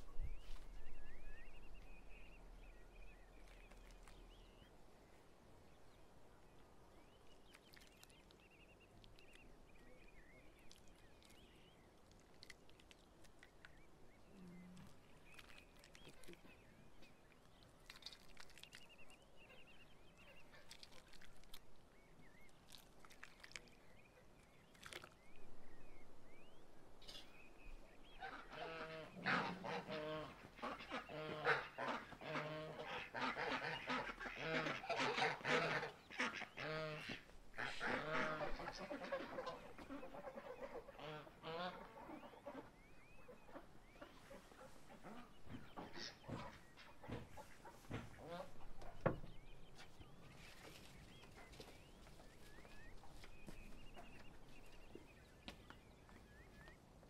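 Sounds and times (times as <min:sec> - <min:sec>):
faint bird chirps: 0:13.5 - 0:21.3, 0:36.0 - 0:56.9
geese honking: 0:28.2 - 0:48.8.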